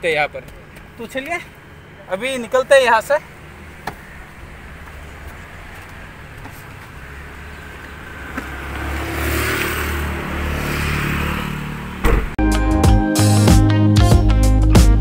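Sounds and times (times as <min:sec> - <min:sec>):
tyre and road noise: 0:00.0 - 0:12.4
vehicle engine hum: 0:00.0 - 0:12.4.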